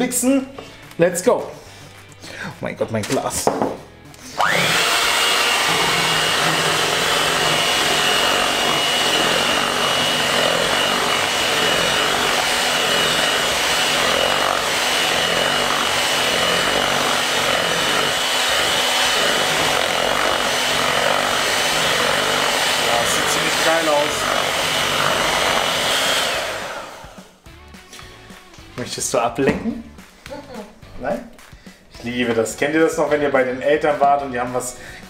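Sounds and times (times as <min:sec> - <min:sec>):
electric hand mixer whining: 0:04.3 - 0:27.4.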